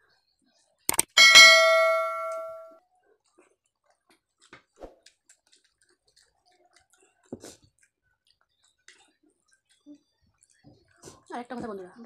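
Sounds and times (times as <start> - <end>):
chime sound effect: 1.0 - 2.7
people chewing: 3.1 - 11.3.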